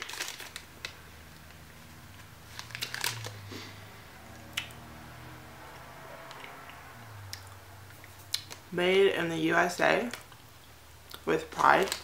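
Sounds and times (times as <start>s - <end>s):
wrapper crinkling: 0.0s - 3.5s, 11.4s - 12.0s.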